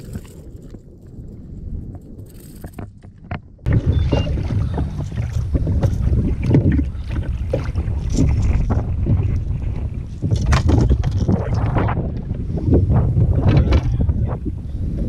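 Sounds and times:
wind buffeting microphone: 0.0s - 15.0s
water slapping on kayak: 3.7s - 14.4s.

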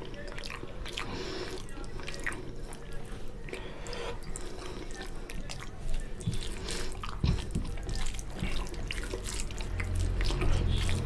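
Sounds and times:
fingers squishing wet food: 0.0s - 11.0s.

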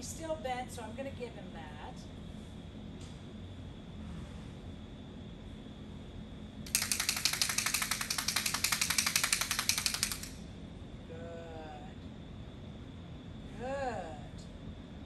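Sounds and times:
clapper noisemaker rattling: 6.7s - 10.4s.

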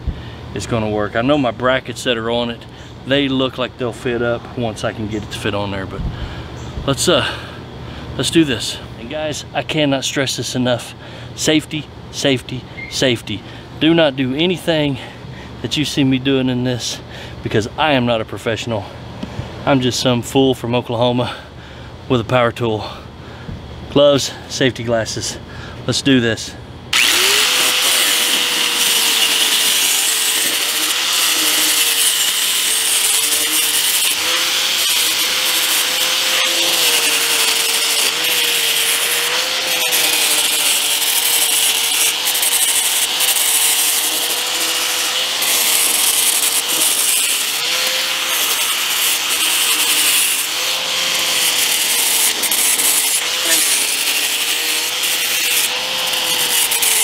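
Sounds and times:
angle grinder sanding plastic: 26.9s - 57.0s.

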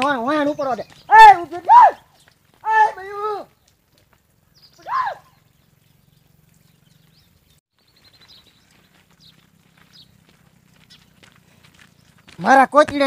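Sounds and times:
faint bird chirps: 4.4s - 11.2s.

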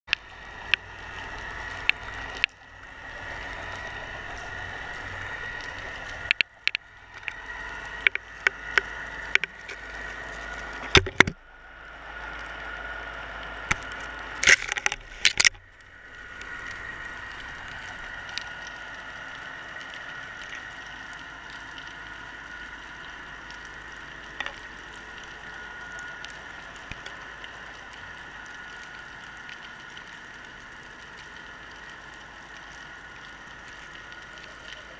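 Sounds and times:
high hum: 0.1s - 34.9s
muffled underwater hiss: 0.2s - 34.9s
sharp clicks and knocks: 8.0s - 9.8s, 10.8s - 11.4s, 13.7s - 15.6s.

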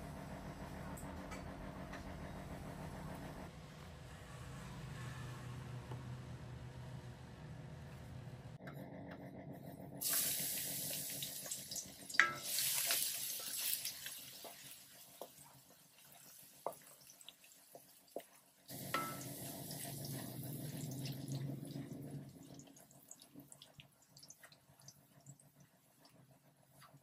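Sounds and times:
garlic sizzling in hot oil: 10.0s - 21.4s
spatula knocking against pan: 18.9s - 19.3s.

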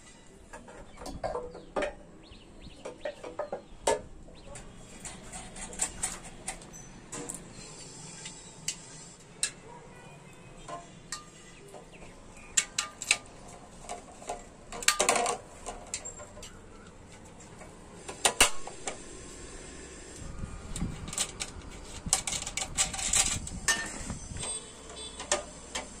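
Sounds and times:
metal rattle: 20.7s - 24.6s.

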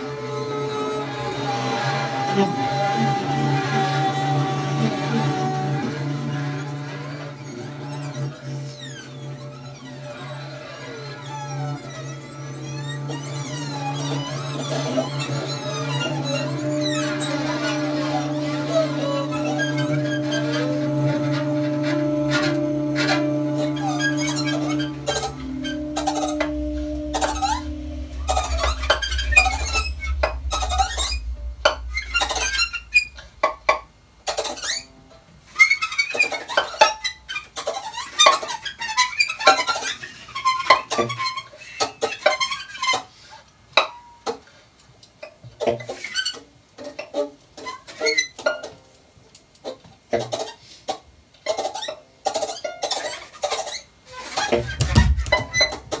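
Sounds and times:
experimental acoustic music: 0.0s - 35.3s, 51.6s - 56.0s
low rumble: 14.1s - 34.6s, 54.5s - 56.0s.

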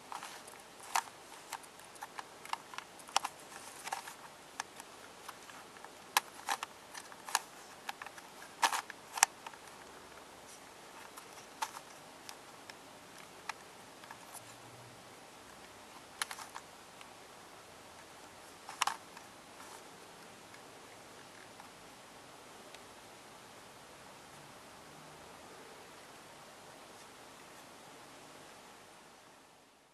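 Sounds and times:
plastic puzzle pieces clicking: 0.1s - 9.8s, 18.7s - 19.0s.

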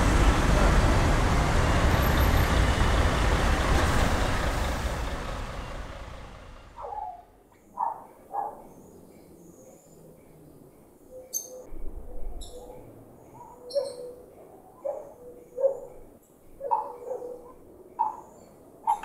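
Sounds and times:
road traffic noise: 0.0s - 7.9s.

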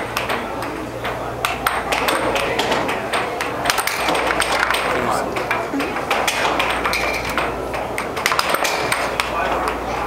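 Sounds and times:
air hockey pucks and mallets clacking: 0.0s - 10.0s.

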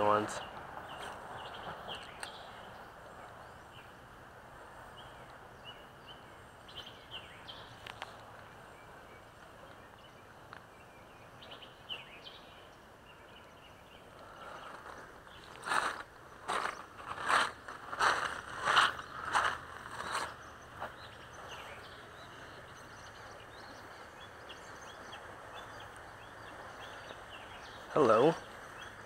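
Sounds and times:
steady outdoor hiss: 0.0s - 29.0s
bird chirps: 0.1s - 4.0s, 4.9s - 29.0s
rustling scrape: 14.7s - 20.4s.

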